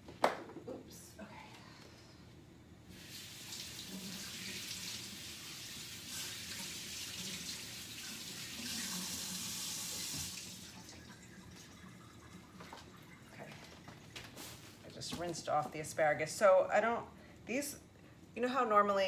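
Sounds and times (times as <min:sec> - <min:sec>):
kitchen tap running: 0:02.9 - 0:14.2.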